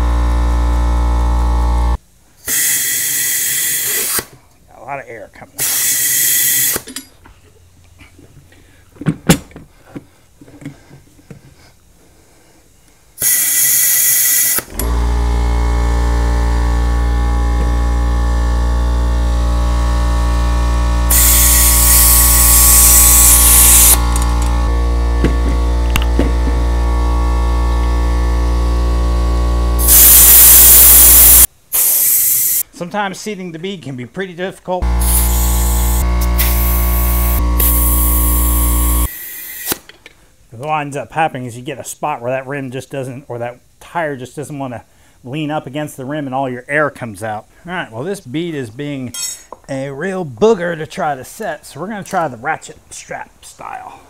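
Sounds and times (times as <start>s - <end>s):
loud steady hum: 14.7s - 31.5s, 34.8s - 39.1s
compressed air hissing: 21.1s - 24.4s, 29.8s - 32.6s, 35.0s - 39.9s.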